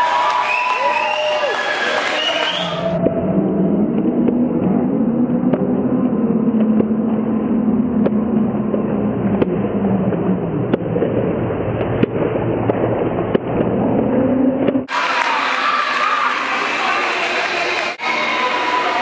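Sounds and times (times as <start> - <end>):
low hum: 2.3 - 15.5.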